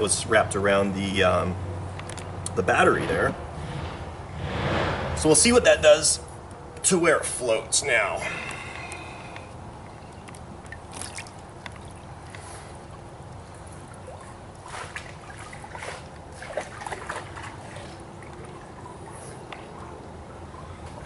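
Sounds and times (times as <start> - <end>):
water sloshing and trickling: 6.3 - 21.0
small splashes and drips: 8.3 - 21.0.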